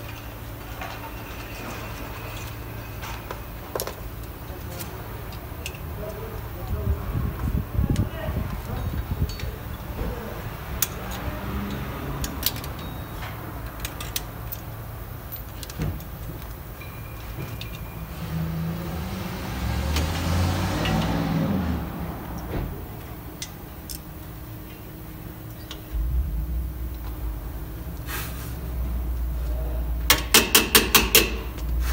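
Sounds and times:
low engine rumble: 0.0 - 31.9
pliers clicking on metal: 10.8 - 13.0.

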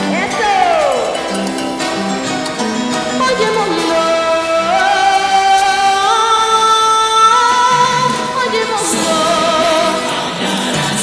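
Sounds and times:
girl singing with vibrato: 3.2 - 10.4.

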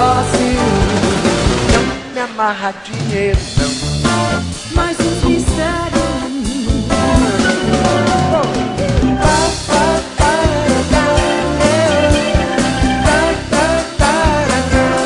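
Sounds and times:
bass: 0.0 - 2.2, 2.9 - 15.0
drum kit beat: 0.0 - 2.2, 2.9 - 15.0
person singing: 0.0 - 3.9, 4.6 - 15.0
acoustic guitar: 0.0 - 15.0.

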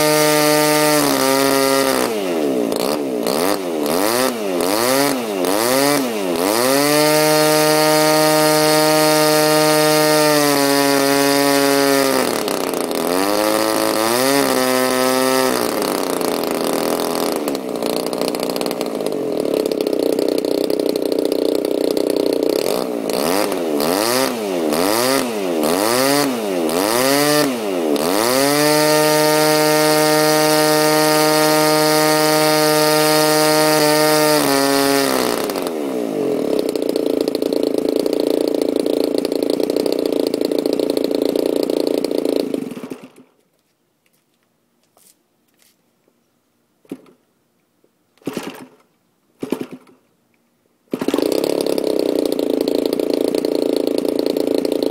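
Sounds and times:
two-stroke engine revving: 0.0 - 43.3, 48.2 - 48.8, 49.4 - 50.0, 50.9 - 54.9
propeller flipped by hand: 48.2 - 50.0.

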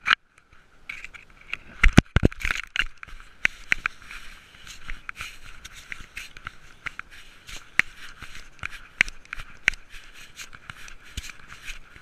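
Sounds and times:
steps rustling through dry leaves: 3.1 - 12.0.

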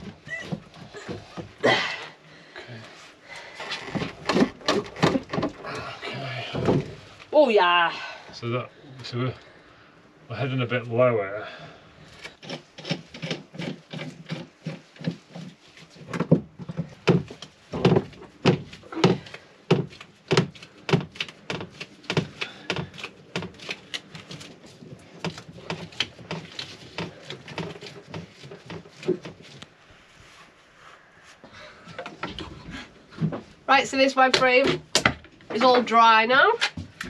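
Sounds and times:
wooden knocks: 3.9 - 5.6, 16.1 - 23.6.

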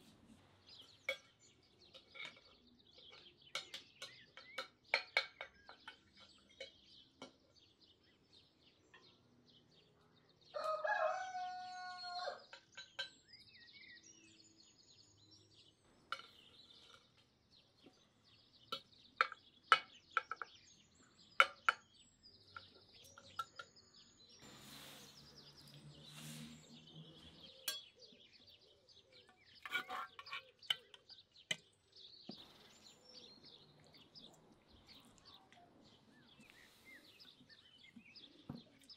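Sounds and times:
small birds chirping: 0.0 - 38.9
rooster crowing: 10.5 - 12.4
metal ladle clinking on cauldron: 27.5 - 28.1.

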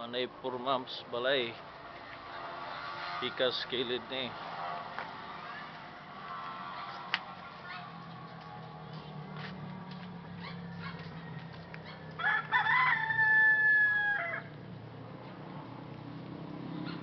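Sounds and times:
rooster crowing: 10.8 - 14.6.

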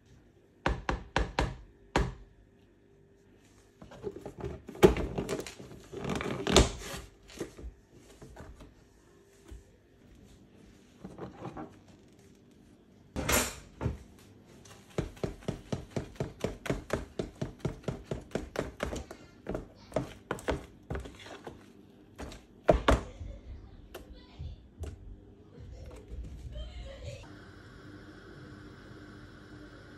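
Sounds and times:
spoon stirring batter in tub: 14.7 - 23.0.

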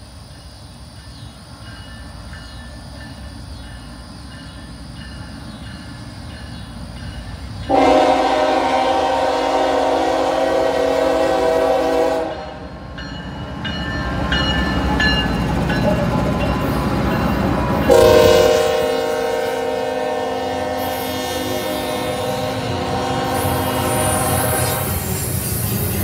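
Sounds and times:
locomotive horn: 7.7 - 12.8, 17.9 - 25.1.

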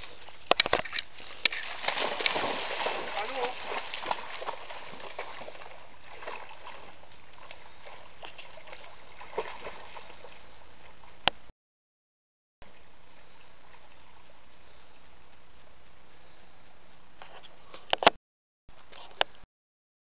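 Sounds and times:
dogs splashing in water: 1.1 - 10.5.

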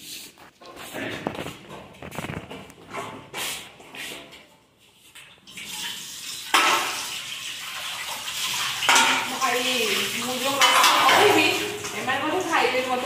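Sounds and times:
water running from tap: 5.4 - 13.0.

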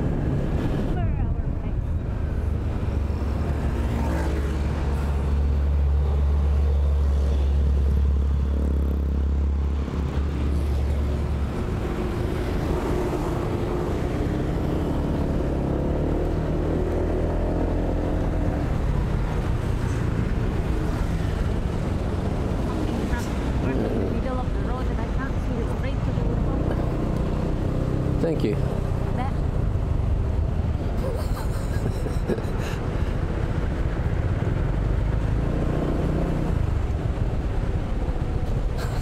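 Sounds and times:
road and wind noise: 0.0 - 39.0.

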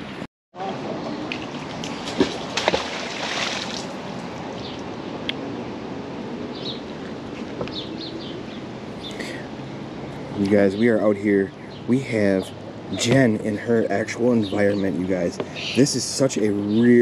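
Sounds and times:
faint bird chirps: 10.6 - 16.0.

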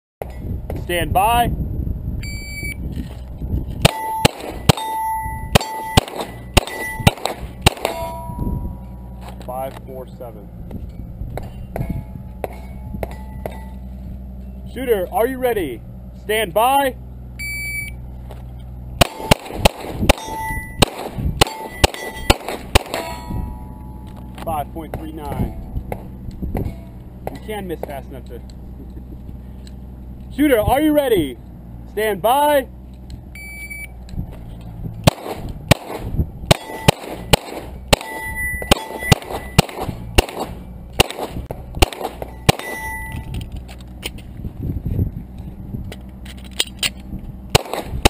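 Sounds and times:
pistol shots: 3.8 - 8.2, 19.0 - 23.3, 35.0 - 43.2, 47.5 - 48.0
steel plates ringing clang: 3.9 - 9.2, 10.9 - 14.6, 20.1 - 24.4, 36.5 - 39.7, 42.2 - 43.4.

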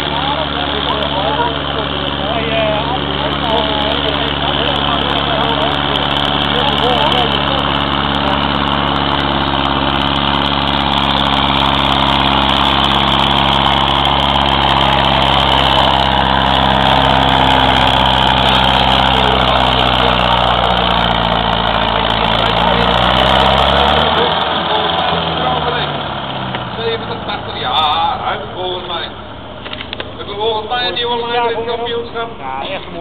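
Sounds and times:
tractor diesel engine under load: 0.0 - 33.0.

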